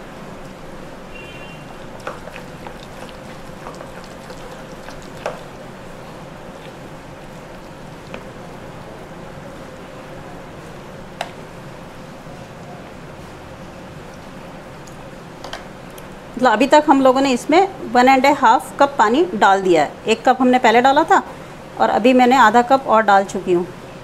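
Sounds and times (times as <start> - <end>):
spoon stirring thick batter: 1.7 - 5.6, 6.4 - 8.7.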